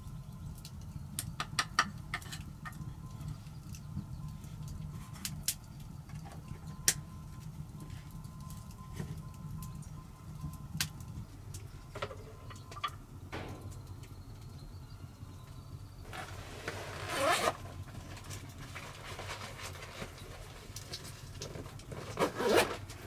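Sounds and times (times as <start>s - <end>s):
backpack zipper rasping: 16.1s - 17.6s, 22.1s - 22.8s.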